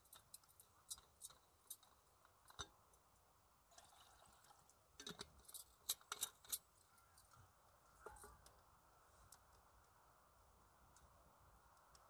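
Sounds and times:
sharp clicks and snaps: 9.3s - 10.0s, 10.9s - 12.0s.

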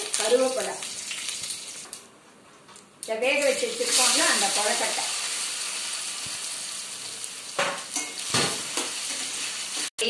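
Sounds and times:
food sizzling in oil: 0.0s - 2.0s, 3.1s - 10.0s.

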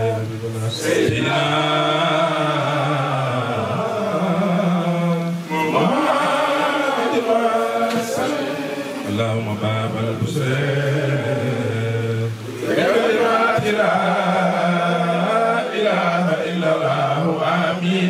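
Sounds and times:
man chanting through microphone: 0.0s - 12.9s.

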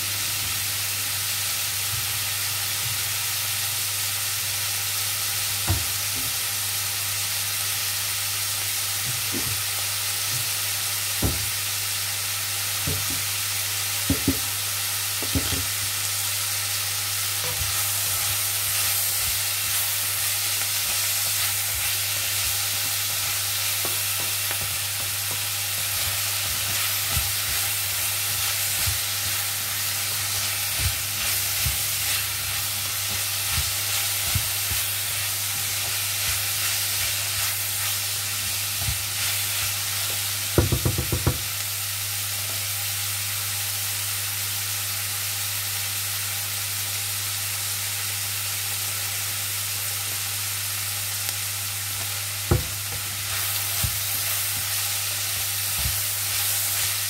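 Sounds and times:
vegetables sizzling in oil: 0.0s - 57.0s
spatula knocking against pan: 40.6s - 41.4s.

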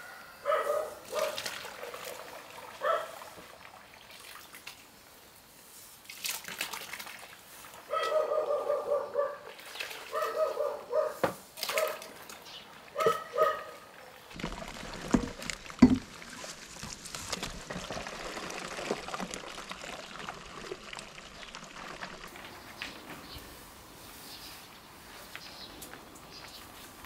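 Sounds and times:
dog barking: 0.0s - 2.0s, 2.8s - 3.2s, 7.9s - 9.5s, 10.1s - 12.1s, 13.0s - 13.9s
water sloshing and pouring: 1.0s - 5.1s, 6.0s - 7.9s, 9.5s - 10.5s, 11.5s - 22.7s
sharp knocks: 15.1s - 16.1s.

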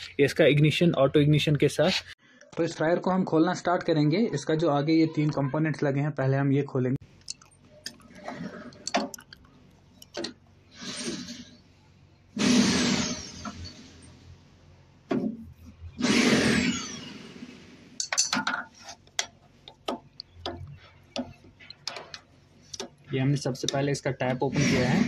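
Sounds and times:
metal scraping: 10.0s - 14.4s, 20.6s - 25.0s
metal tool clicking and knocking: 18.0s - 23.0s.

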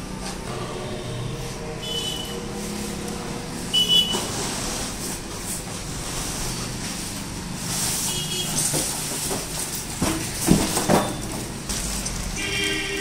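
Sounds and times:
cardboard packing squeaking: 3.8s - 13.0s.

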